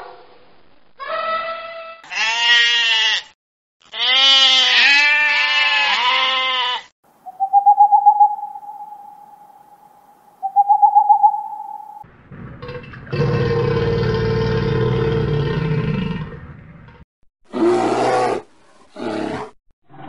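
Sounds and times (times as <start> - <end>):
sheep bleating: 2.0 - 6.9
owl call with trill: 7.3 - 12.0.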